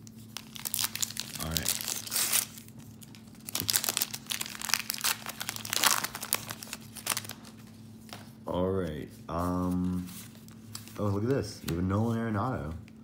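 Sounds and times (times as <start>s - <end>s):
wrapper tearing and crumpling: 0.0s - 7.6s.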